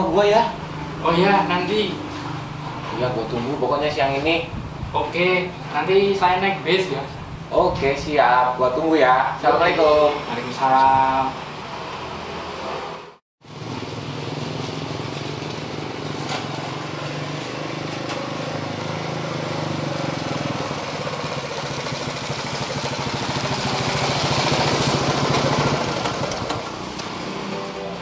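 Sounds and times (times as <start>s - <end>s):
motorcycle engine running: 13.5s - 28.0s.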